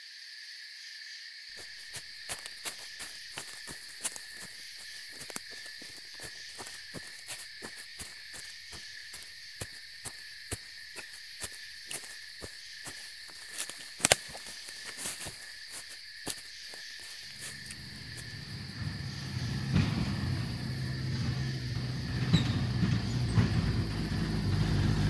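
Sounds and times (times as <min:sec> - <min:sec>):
crickets and insects chirping: 0:00.0 - 0:25.0
low rumble: 0:17.3 - 0:25.0.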